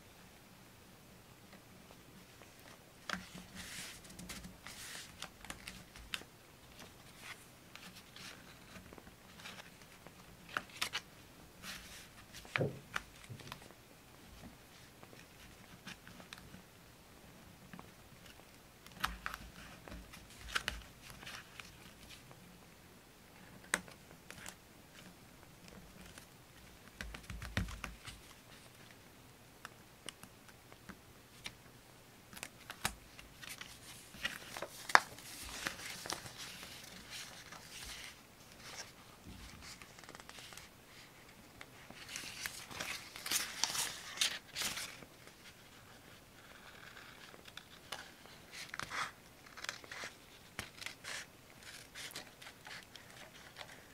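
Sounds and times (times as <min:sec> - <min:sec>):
paper crinkling and rustling: 0:02.4 - 0:13.7, 0:17.7 - 0:22.4, 0:32.3 - 0:53.9.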